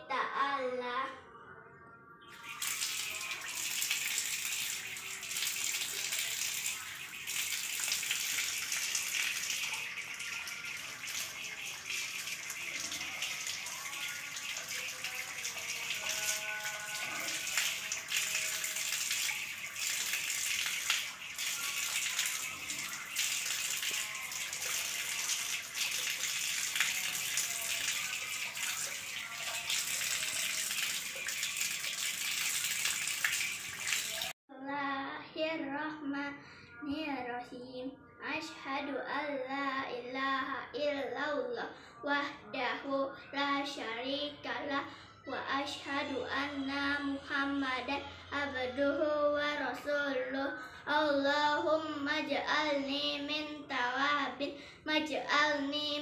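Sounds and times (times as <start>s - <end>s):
water running from a tap: 2.4s - 34.4s
water splashing on tiled floor: 2.4s - 34.4s.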